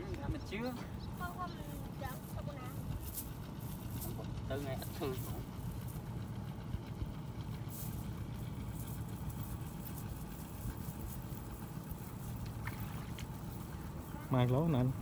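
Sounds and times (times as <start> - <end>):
low engine drone: 0.0 - 15.0.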